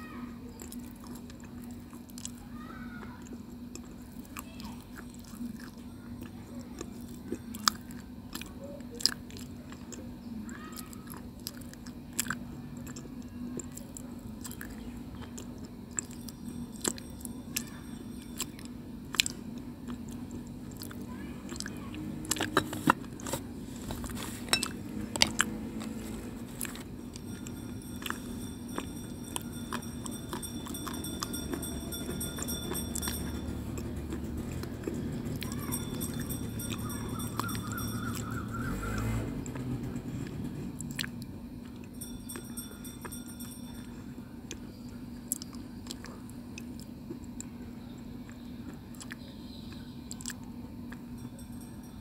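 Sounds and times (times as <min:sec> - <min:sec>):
steady low hum: 0:00.0 - 0:52.0
chewing stone crunches: 0:11.0 - 0:17.7, 0:18.3 - 0:39.6.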